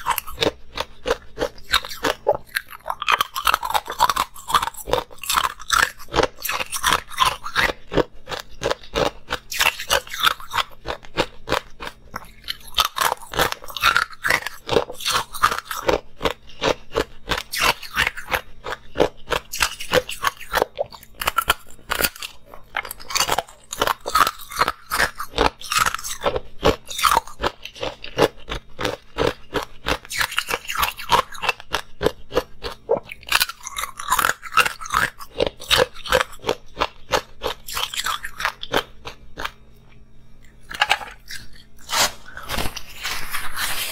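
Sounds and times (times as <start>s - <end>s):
ice cubes crunching being chewed: 0.0s - 43.9s.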